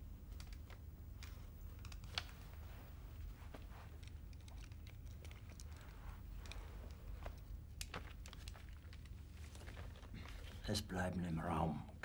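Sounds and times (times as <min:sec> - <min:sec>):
faint handling clicks and rustles: 0:00.0 - 0:10.9
low steady hum: 0:00.0 - 0:12.0.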